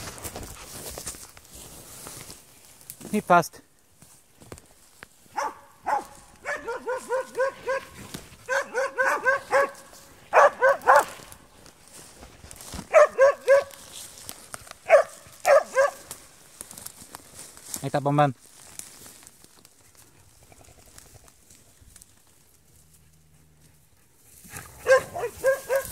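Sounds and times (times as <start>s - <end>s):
dog barking: 5.3s - 11.2s, 12.9s - 13.8s, 14.9s - 16.1s, 24.8s - 25.9s.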